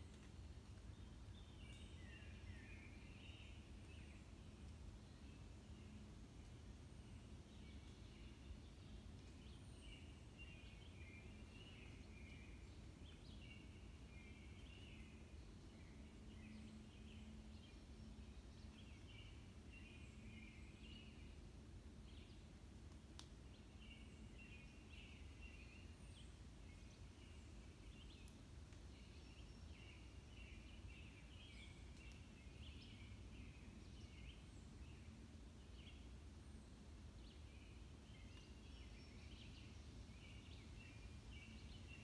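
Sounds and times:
birds chirping and twittering: 23.5 - 42.0.

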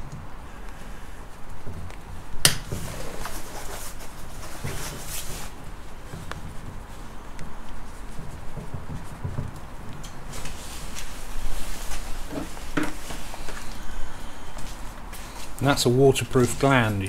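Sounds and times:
plastic sheath scraping and rustling: 2.7 - 13.8.

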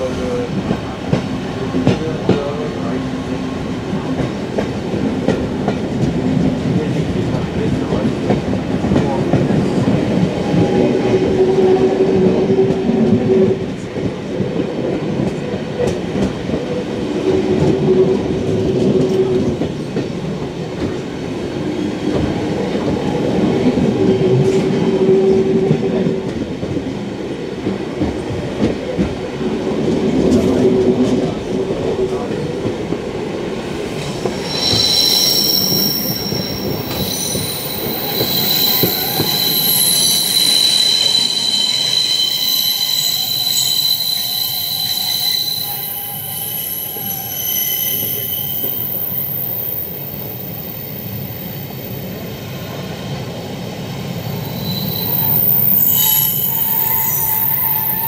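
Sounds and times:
steam train running on track: 0.0 - 58.0
held tone: 34.2 - 52.0.

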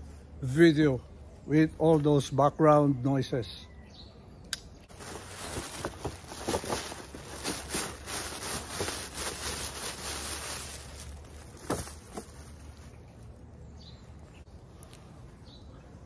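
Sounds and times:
shopping bag and shirt rustling: 4.9 - 13.0.

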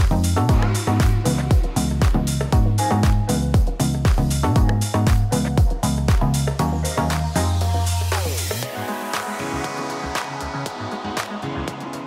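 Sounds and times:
held bass note: 0.0 - 8.2
electronic music with a beat: 0.0 - 12.0.

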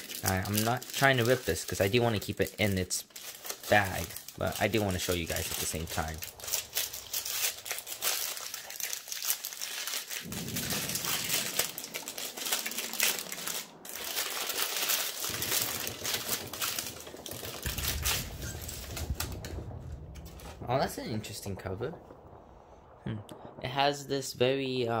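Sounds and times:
paper wrapping crinkling: 0.0 - 19.6.

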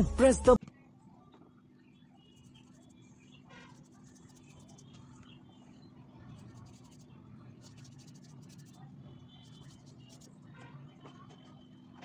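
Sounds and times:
low steady hum: 0.0 - 12.0
colour scratching on paper: 2.2 - 5.5, 6.2 - 10.9.

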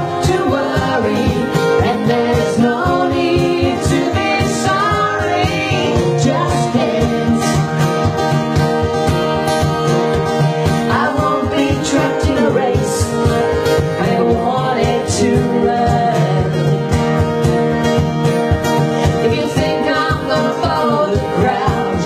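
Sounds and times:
woman singing into microphone: 0.0 - 7.8, 10.7 - 17.0, 19.0 - 22.0
strummed acoustic guitar: 0.0 - 22.0.

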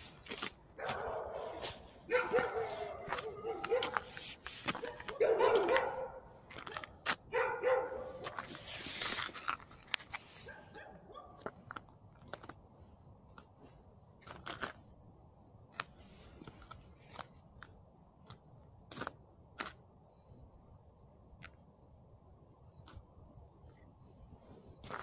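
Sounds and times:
footsteps crunching on frost: 0.0 - 12.6
dog barking: 0.8 - 8.2, 10.4 - 11.4.

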